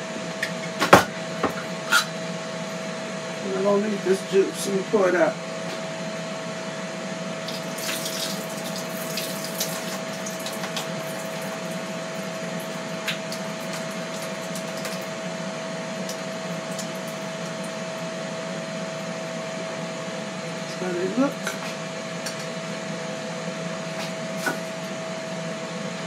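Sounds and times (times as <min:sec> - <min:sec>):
appliance fan whirring: 0:00.0 - 0:26.0
liquid splashing and trickling: 0:07.5 - 0:11.6.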